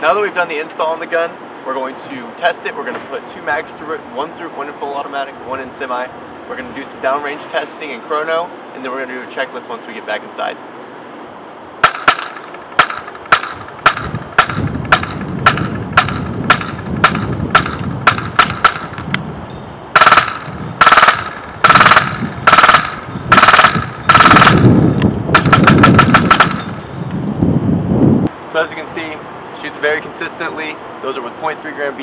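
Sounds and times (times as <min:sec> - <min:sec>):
airsoft rifle shots: 0:11.8 - 0:19.1, 0:20.0 - 0:24.6, 0:25.3 - 0:26.8.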